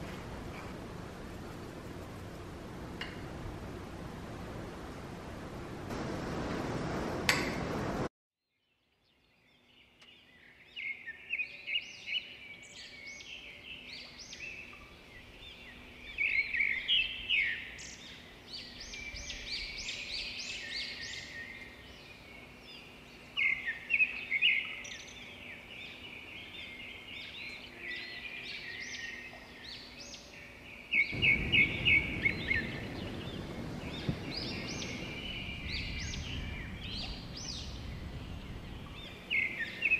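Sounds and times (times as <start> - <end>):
steady hiss: 0.0 - 8.1
small birds chirping: 8.6 - 39.9.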